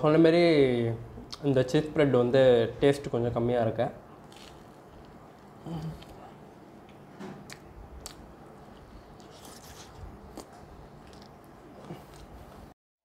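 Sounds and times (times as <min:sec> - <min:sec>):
person chewing toasted sandwich: 0:04.2 - 0:12.7.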